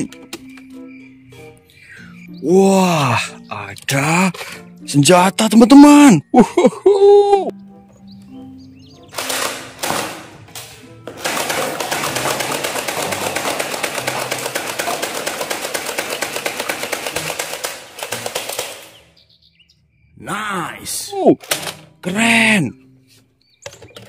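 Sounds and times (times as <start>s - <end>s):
toy blaster rapid fire: 11.2s - 19.0s.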